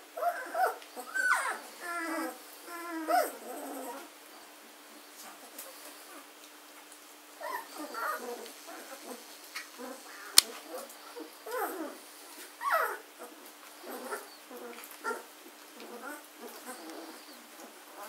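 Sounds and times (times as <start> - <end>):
puppies whimpering and squeaking: 0.2 - 4.1, 7.4 - 18.0
puppy whines: 0.2 - 4.1, 7.4 - 9.2, 9.8 - 12.0, 12.6 - 18.0.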